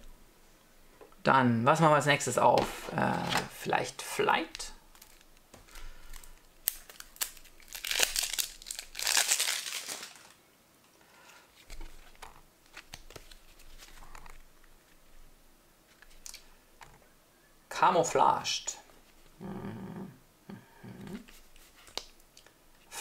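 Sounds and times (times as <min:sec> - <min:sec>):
cards rustling: 0:02.6 - 0:03.8, 0:04.9 - 0:10.4, 0:11.6 - 0:15.1, 0:15.9 - 0:16.9
wrapper crinkling and tearing: 0:04.9 - 0:10.4, 0:15.9 - 0:16.5.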